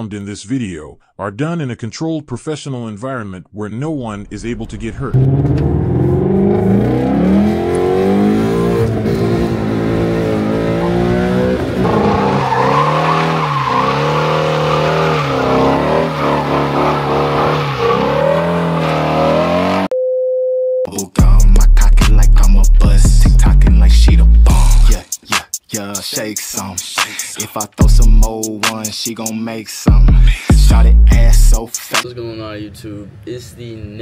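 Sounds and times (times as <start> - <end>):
car engine revving hard: 5.1 - 19.9
tyres squealing: 11.8 - 19.9.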